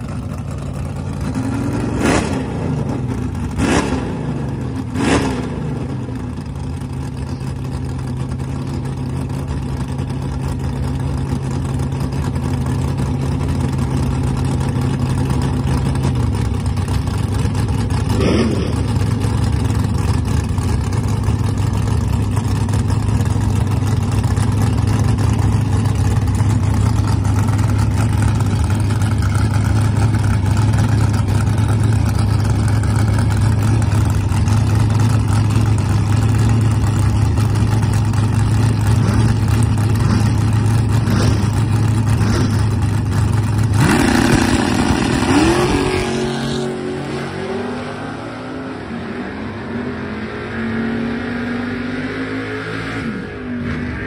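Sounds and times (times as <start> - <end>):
car engine idling: 0.0 - 48.1
engine revving: 1.2 - 6.1, 18.0 - 19.4, 32.7 - 54.0.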